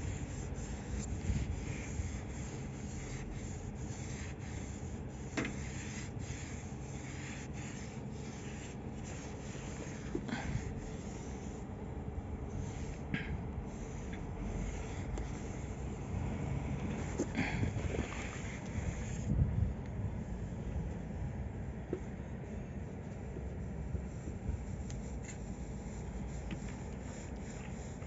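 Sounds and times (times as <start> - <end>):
rag rubbing on steel: 0.0 - 11.7.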